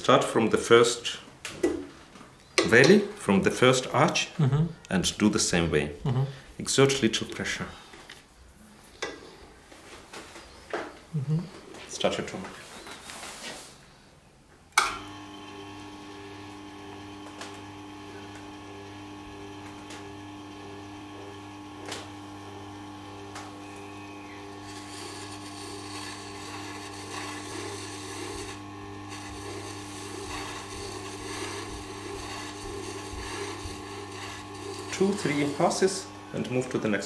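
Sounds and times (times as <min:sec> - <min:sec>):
sharpening machine motor humming: 0:14.8 - 0:37.0
knife blade rubbing on wheel: 0:23.6 - 0:36.3.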